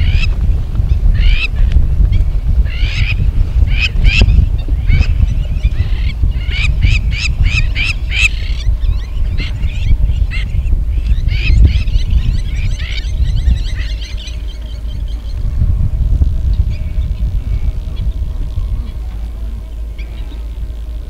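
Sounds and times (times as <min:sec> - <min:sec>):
low rumble: 0:00.0 - 0:21.0
waterfowl calling: 0:02.7 - 0:15.4.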